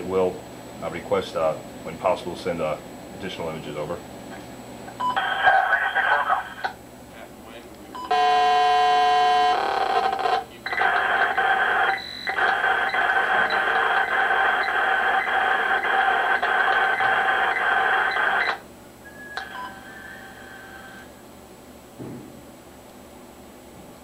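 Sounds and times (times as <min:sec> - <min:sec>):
modem-like radio data tones: 0:05.0 - 0:07.4, 0:08.0 - 0:21.2.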